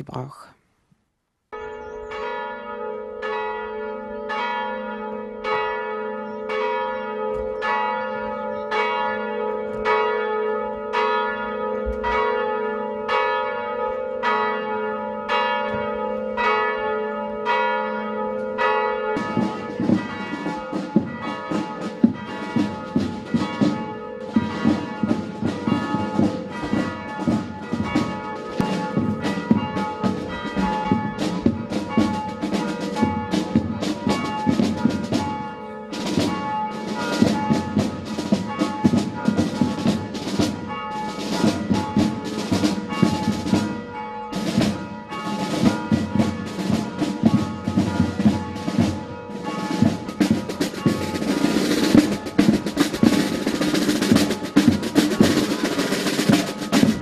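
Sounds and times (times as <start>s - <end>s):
church bell striking: 1.6s - 57.0s
overlapping bell clangour: 2.1s - 57.0s.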